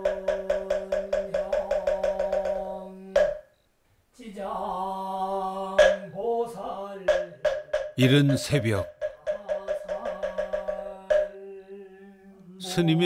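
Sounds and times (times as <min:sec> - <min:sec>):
wooden fish strikes: 0:03.2 - 0:03.5, 0:05.8 - 0:06.1, 0:07.1 - 0:11.3.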